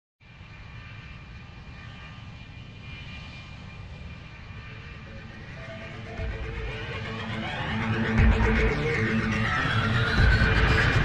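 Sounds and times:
jet engine whine and rumble: 0.2s - 11.0s
sustained musical notes: 5.2s - 11.0s.

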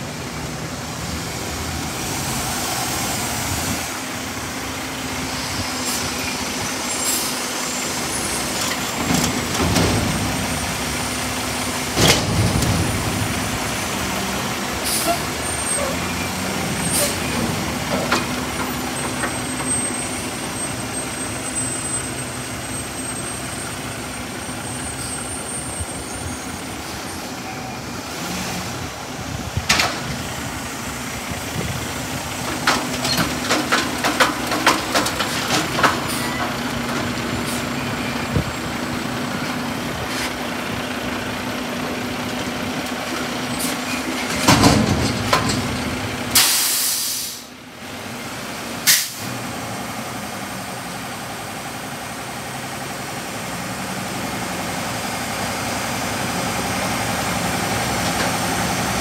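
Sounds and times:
diesel engine humming: 0.0s - 59.0s
metal clanks and rattles: 8.5s - 11.0s, 11.9s - 13.7s, 16.9s - 19.8s, 32.4s - 37.6s, 42.9s - 46.5s
air hiss burst: 46.4s - 47.5s.

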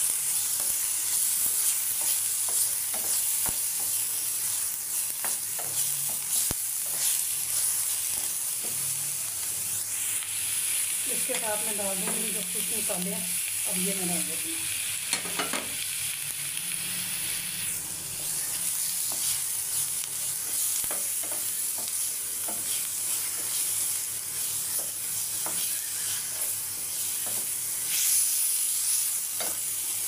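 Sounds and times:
masala sizzling in a pan: 0.0s - 30.0s
wooden spoon scraping and tapping pan: 1.9s - 4.0s, 5.2s - 7.2s, 11.3s - 12.4s, 19.0s - 19.4s, 20.4s - 23.6s, 24.6s - 27.6s.

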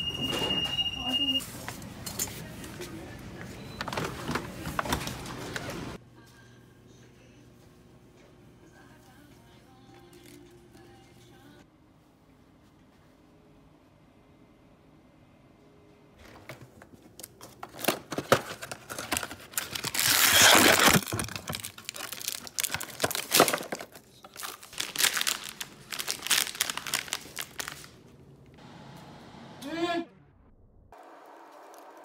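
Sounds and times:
plastic wrapper crinkling: 17.2s - 28.1s.

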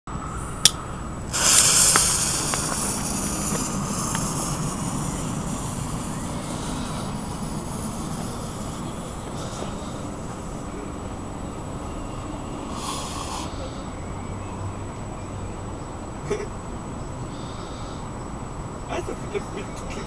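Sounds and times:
faint crackles: 1.3s - 10.9s
smoke grenade hissing: 1.3s - 13.9s.

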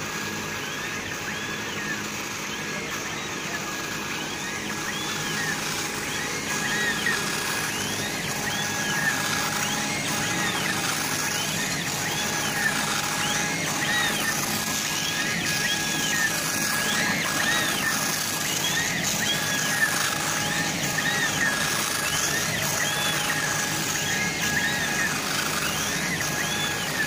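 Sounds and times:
drive motors whining: 0.0s - 27.0s.

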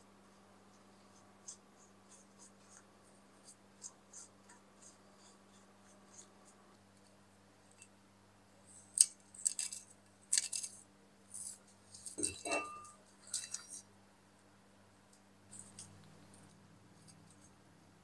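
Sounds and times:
metal scraping on stone: 12.0s - 13.8s.

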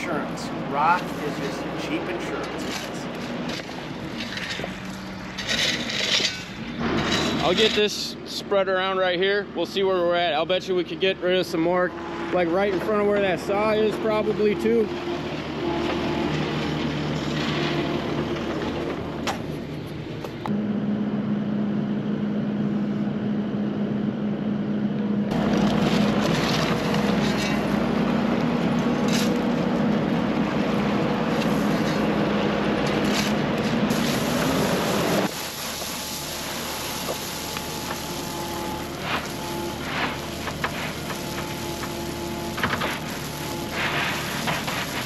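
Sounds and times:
diesel engine running: 0.0s - 45.0s.

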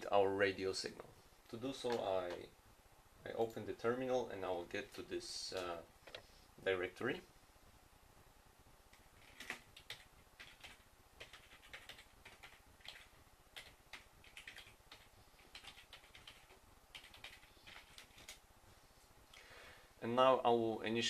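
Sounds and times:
typing on computer keyboard: 9.2s - 18.4s.

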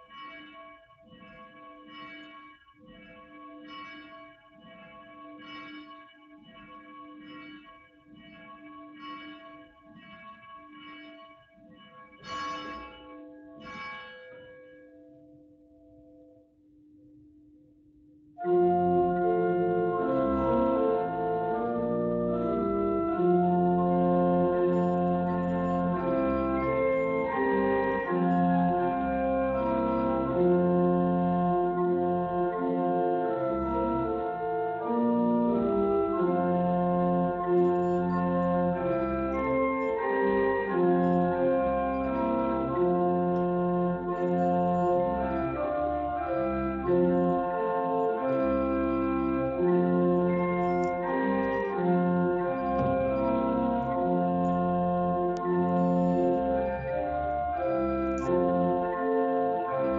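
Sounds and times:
organ playing sustained chords: 18.4s - 59.9s.

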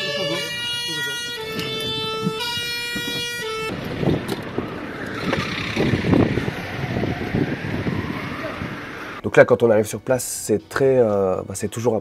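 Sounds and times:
two-tone emergency siren: 0.0s - 9.2s
wind and movement noise: 1.5s - 9.2s.

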